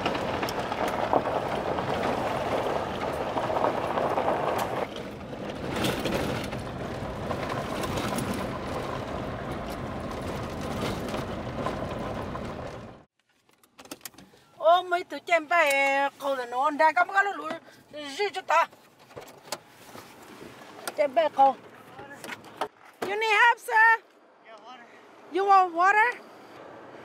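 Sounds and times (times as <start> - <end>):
vehicle driving on gravel: 0.0 - 13.1, 26.2 - 27.0.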